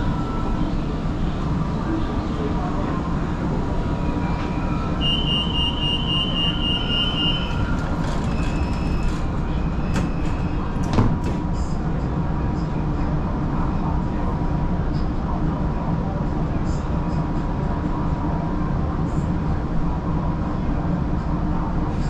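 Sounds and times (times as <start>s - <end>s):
low hum of train: 0.0s - 22.0s
rapid high warning beeps: 5.0s - 7.6s
train doors sliding shut: 6.4s - 11.6s.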